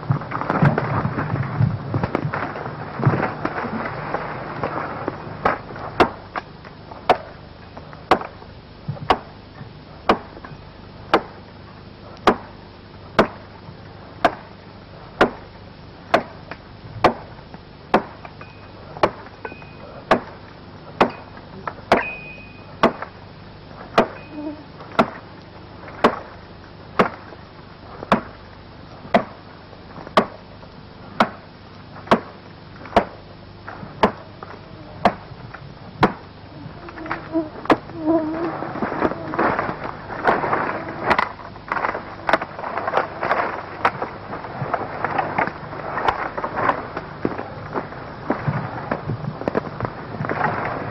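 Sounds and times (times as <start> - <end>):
branches crackling and rustling: 0.0 - 50.9
axe chopping wood: 5.4 - 6.5, 7.1 - 7.3, 8.1 - 8.4, 9.0 - 9.3, 10.0 - 10.5, 11.1 - 11.4, 12.2 - 12.5, 13.2 - 13.4, 14.2 - 14.5, 15.2 - 15.4, 16.1 - 17.3, 17.9 - 18.4, 19.0 - 20.4, 21.0 - 21.3, 21.9 - 22.2, 22.8 - 23.2, 23.9 - 24.2, 24.9 - 25.2, 26.0 - 26.3, 27.0 - 27.3, 28.1 - 28.4, 29.1 - 29.4, 30.1 - 30.4, 31.2 - 31.4, 32.1 - 33.2, 34.0 - 34.2, 35.0 - 35.2, 36.0 - 36.2.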